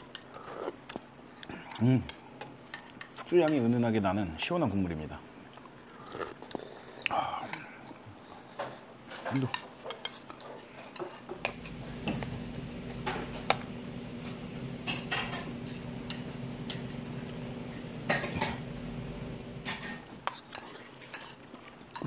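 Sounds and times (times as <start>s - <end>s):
steady low hum: 11.3s - 20.2s
spoon and chopsticks clinking on bowl: 18.1s - 18.6s.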